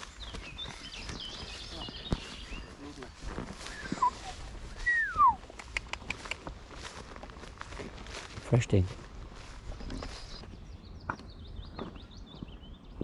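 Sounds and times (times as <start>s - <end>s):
small birds chirping: 0.0s - 13.0s
sharp clicks: 5.5s - 6.5s.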